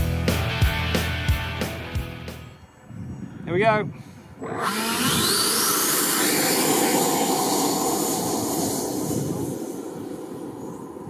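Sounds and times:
loud rush of air: 4.0 - 11.0
electric fan whining: 4.4 - 11.0.

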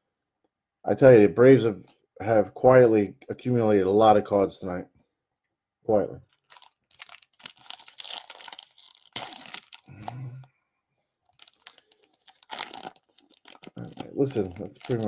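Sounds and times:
cards and foil wrappers crinkling: 6.3 - 10.5, 11.2 - 15.0.

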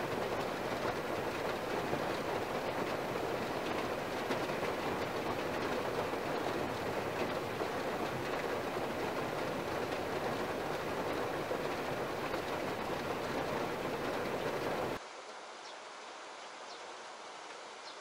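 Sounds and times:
heavy rain on car roof: 0.0 - 15.2.

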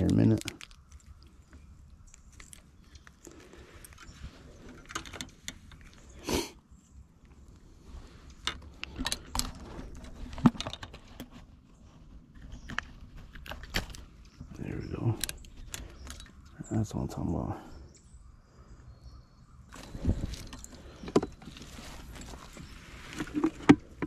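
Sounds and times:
rustling of handled objects: 0.0 - 6.2, 6.9 - 16.6, 19.7 - 24.0.

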